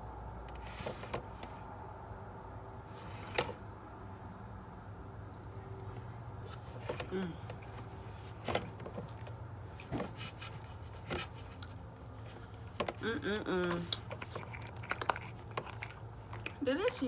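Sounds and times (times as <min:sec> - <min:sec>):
chewing: 0:08.9 - 0:13.0, 0:13.7 - 0:17.0.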